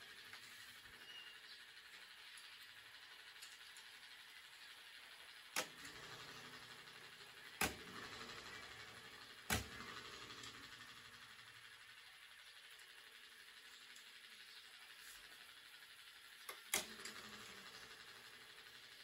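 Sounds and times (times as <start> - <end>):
sharp clicks of small tools: 5.5 - 5.8, 16.4 - 17.2.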